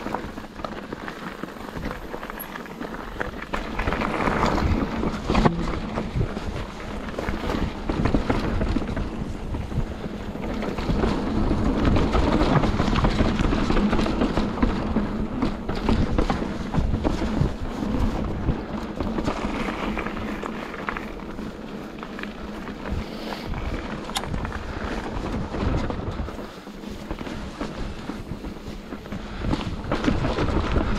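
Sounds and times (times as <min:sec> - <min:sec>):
bike rattling and clattering: 0:00.0 - 0:30.9
bike tyres rumbling over rock: 0:00.0 - 0:30.9
wind buffeting microphone: 0:00.0 - 0:30.9.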